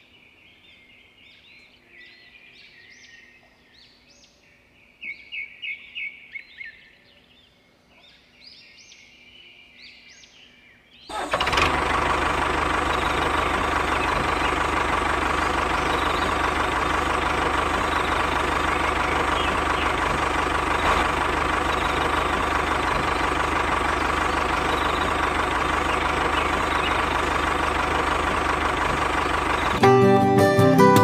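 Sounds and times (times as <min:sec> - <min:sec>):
engine running steadily: 0:11.1 - 0:31.0.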